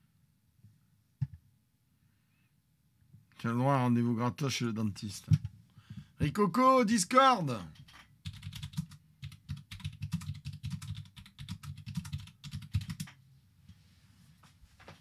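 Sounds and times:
typing on keyboard: 0:07.8 - 0:13.2.

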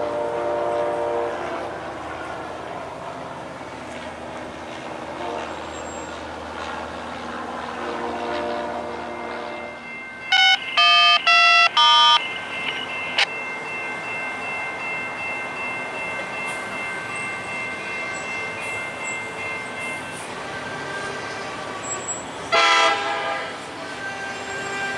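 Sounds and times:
locomotive air horn blasts: 0:00.0 - 0:01.8, 0:05.1 - 0:05.7, 0:07.8 - 0:12.2, 0:22.5 - 0:24.9
steady high ringing tone: 0:09.0 - 0:22.5.

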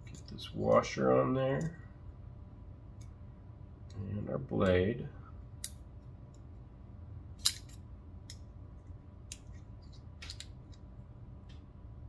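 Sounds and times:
metal knife parts clicking: 0:07.4 - 0:08.4.

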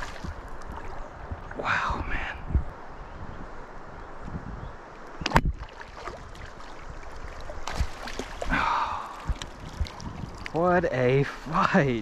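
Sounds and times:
water splashing around kayak: 0:00.0 - 0:01.6, 0:05.3 - 0:10.6.

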